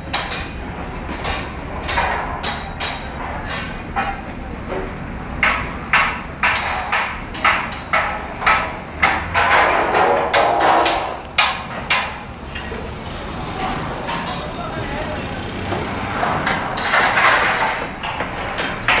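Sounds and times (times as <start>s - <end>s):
voices: 9.5s - 19.0s.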